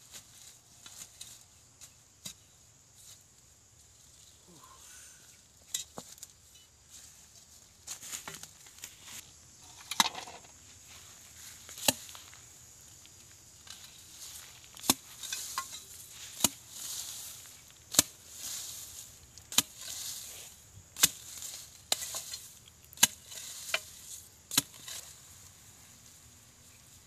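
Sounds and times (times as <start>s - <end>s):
soil and leaves rustling: 0.0s - 27.0s
digging bar striking soil: 0.1s - 2.5s, 7.9s - 12.4s, 13.5s - 25.4s.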